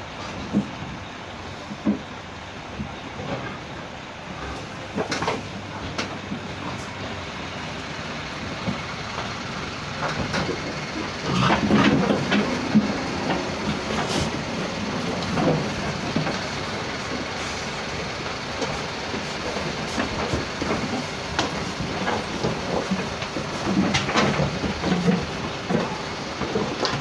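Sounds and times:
lorry rumbling: 6.4 - 18.4.

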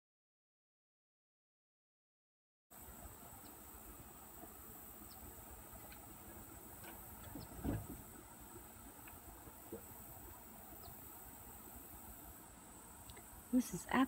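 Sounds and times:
low thump: 7.2 - 8.1.

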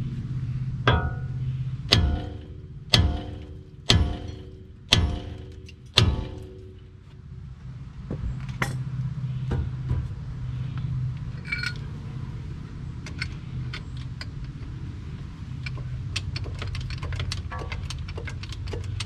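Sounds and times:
low mechanical hum: 0.0 - 19.0
metal ringing clink: 0.9 - 6.9, 11.4 - 11.9.

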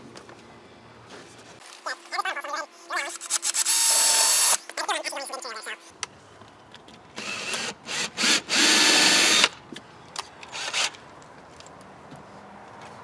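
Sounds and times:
cordless drill bursts: 3.2 - 4.6, 7.2 - 9.6, 10.5 - 11.0.

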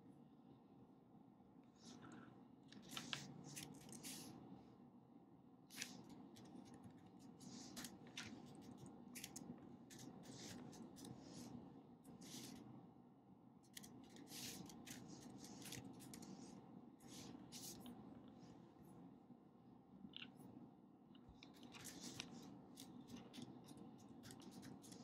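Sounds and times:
low room hum: 0.0 - 25.0
scratchy strokes at a desk: 2.8 - 4.5, 5.7 - 12.7, 13.7 - 19.0, 21.5 - 25.0.

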